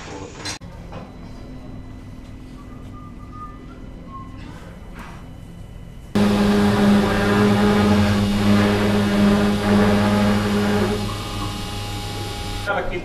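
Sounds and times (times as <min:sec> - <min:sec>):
cnc router machine hum: 0:06.2 - 0:12.7.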